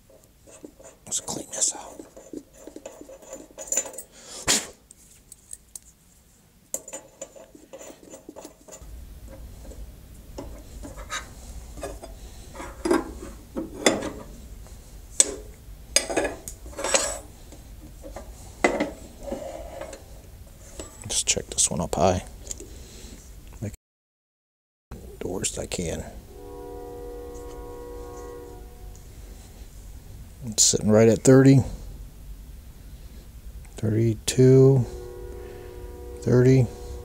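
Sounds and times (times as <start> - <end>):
wrenches clinking on metal table: 0.8 - 4.2
steady low hum: 5.1 - 23.7, 25.0 - 37.0.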